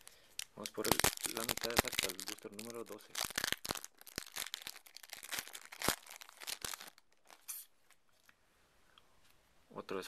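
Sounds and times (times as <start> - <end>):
foil wrapper tearing and crinkling: 0.0 - 7.6.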